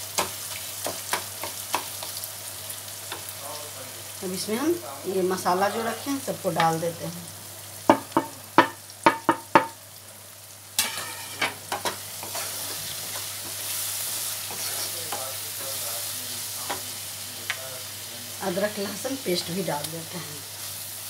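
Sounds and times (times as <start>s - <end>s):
food sizzling in a pan: 0.0s - 21.0s
spatula scraping a pan: 5.5s - 6.3s, 10.8s - 17.0s
wooden spatula tapping: 7.9s - 9.8s.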